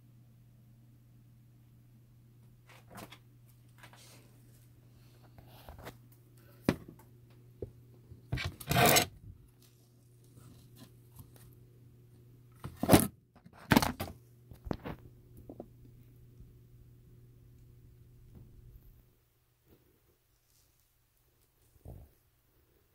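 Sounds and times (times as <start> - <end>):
steady low hum: 14.2 - 20.2.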